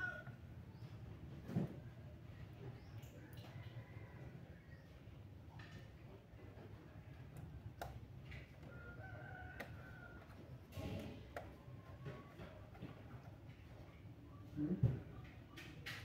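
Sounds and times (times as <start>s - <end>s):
rooster crowing: 0.0s - 0.4s, 8.7s - 10.4s.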